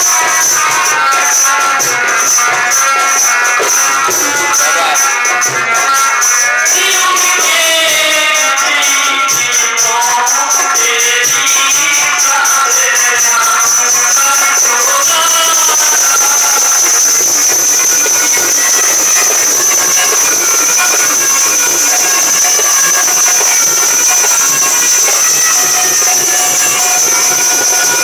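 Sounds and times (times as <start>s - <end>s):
high-pitched whine: 0.0s - 28.0s
stage music: 0.0s - 28.0s
loud hiss: 13.4s - 28.0s.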